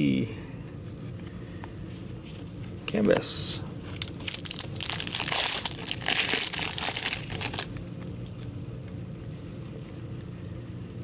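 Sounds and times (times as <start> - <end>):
foil wrapper crinkling: 3.8 - 7.8.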